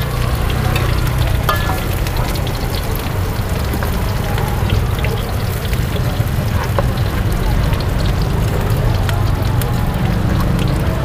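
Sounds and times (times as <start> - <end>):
cooking oil sizzling: 0.0 - 11.0.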